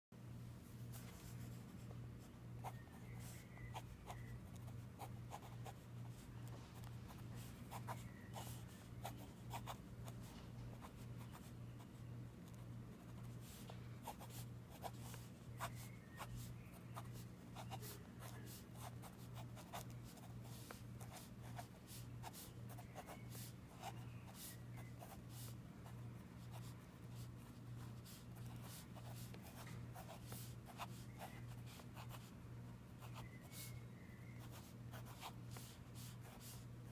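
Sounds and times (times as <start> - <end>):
low steady hum: 0.2 - 36.9
pen scratching on paper: 2.7 - 9.8, 12.4 - 32.3, 34.4 - 36.7.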